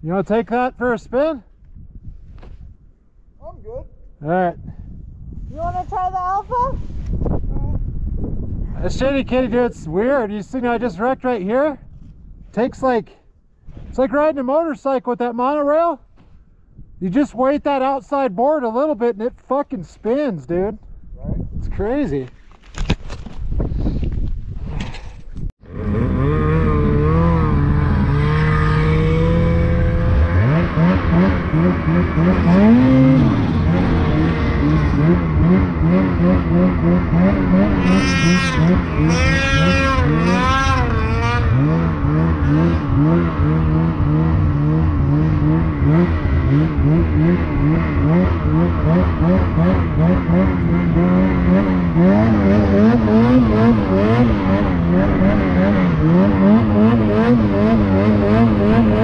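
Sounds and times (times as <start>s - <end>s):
snowmobile engine revving: 25.6s - 59.0s.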